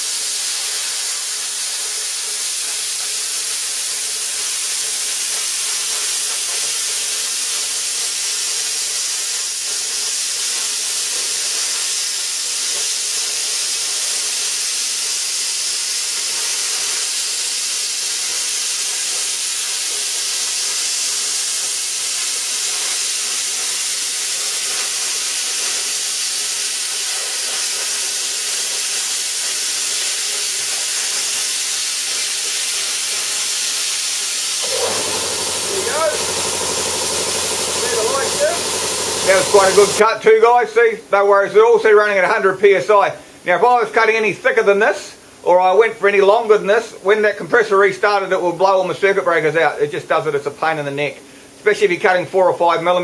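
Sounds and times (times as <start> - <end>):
plasma cutter hissing: 0.0 - 40.1.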